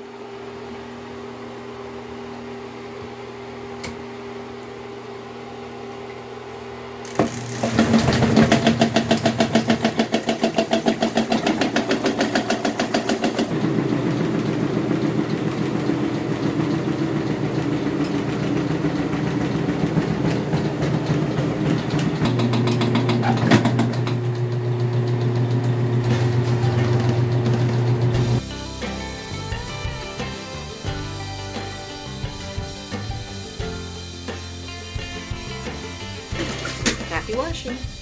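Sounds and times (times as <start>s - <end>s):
washing machine spin motor: 0.0s - 38.0s
spinning tub wobbling: 7.2s - 28.5s, 29.3s - 38.0s.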